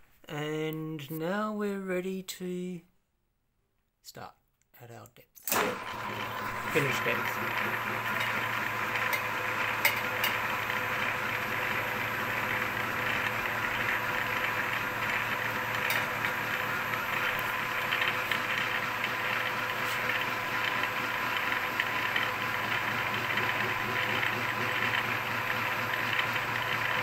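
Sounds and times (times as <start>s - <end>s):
milling machine drone: 5.6s - 27.0s.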